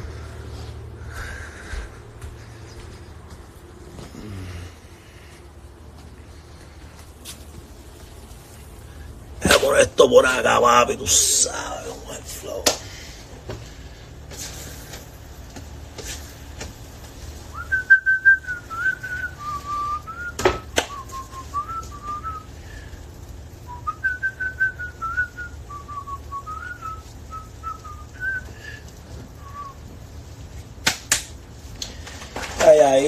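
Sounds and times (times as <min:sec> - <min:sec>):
man whistling a tune: 0:17.5 - 0:22.5, 0:23.7 - 0:28.8, 0:29.4 - 0:29.8.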